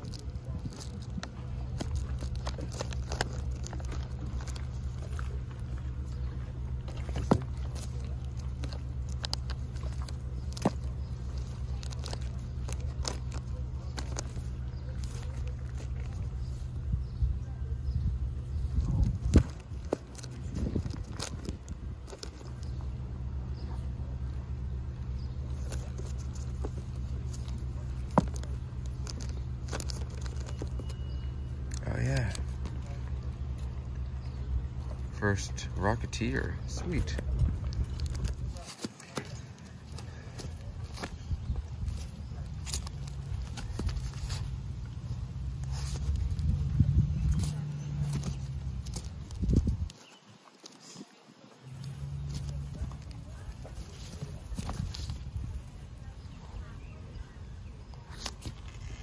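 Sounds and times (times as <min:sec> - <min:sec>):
plastic bags crinkling and clicking: 0:00.0 - 0:16.7, 0:19.0 - 0:22.8, 0:25.4 - 0:33.7, 0:36.9 - 0:46.6
steady low rumble: 0:00.0 - 0:50.0, 0:51.6 - 0:59.0.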